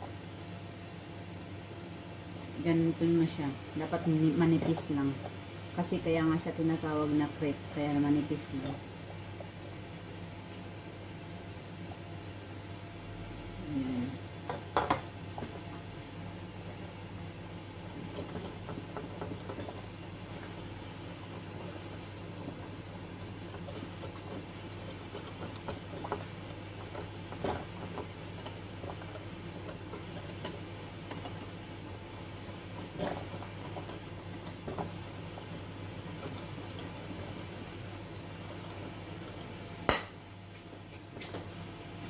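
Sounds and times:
steady low hum: 0.0s - 42.0s
whisk stirring batter: 17.9s - 39.6s.

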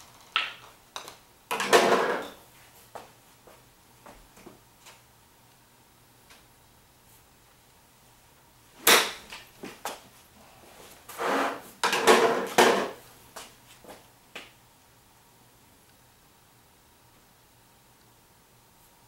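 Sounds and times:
club scraping ball on mat: 1.6s - 2.4s, 11.1s - 13.0s.

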